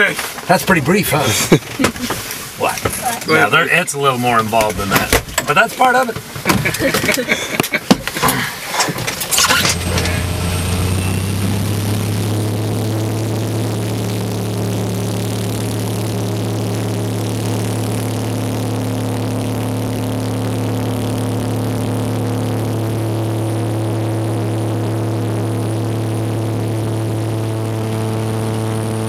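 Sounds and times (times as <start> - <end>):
aircraft piston engine idling: 8.6 - 12.7.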